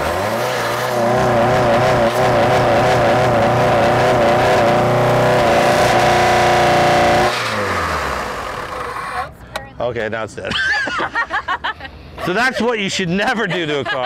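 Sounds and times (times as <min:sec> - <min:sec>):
car engine running: 0:00.0 - 0:09.4
engine stalling: 0:00.0 - 0:09.4.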